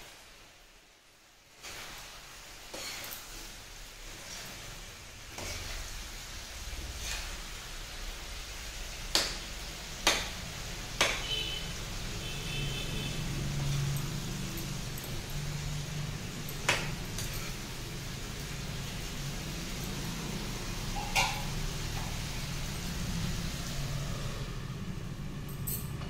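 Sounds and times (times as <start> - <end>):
vegetables stirred with spatula: 0.0 - 24.6
spatula knocking on pan: 9.1 - 10.4, 11.0 - 11.4.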